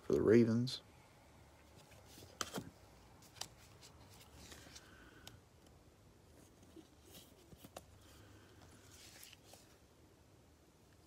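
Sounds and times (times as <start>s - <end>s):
trading cards rustling and clicking: 1.7s - 5.8s, 6.5s - 9.8s.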